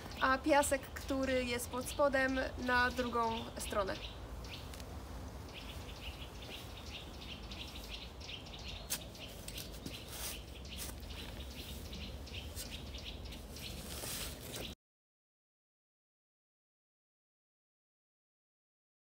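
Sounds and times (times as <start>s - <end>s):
small birds chirping: 0.0s - 14.8s.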